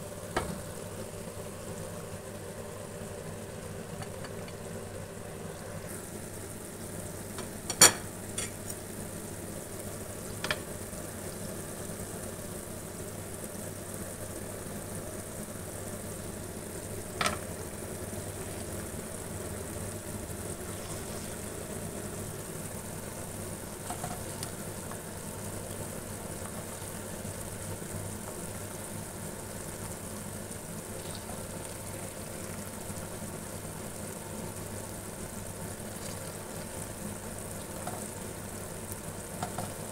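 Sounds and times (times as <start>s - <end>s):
food sizzling in oil: 0.0s - 39.9s.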